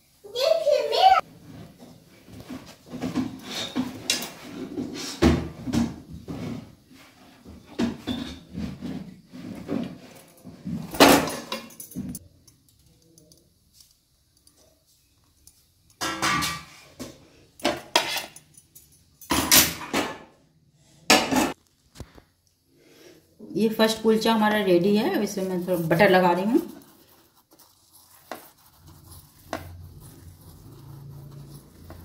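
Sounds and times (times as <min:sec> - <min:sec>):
metal utensils clattering: 0:11.0 - 0:12.2, 0:16.0 - 0:16.8, 0:17.6 - 0:20.2.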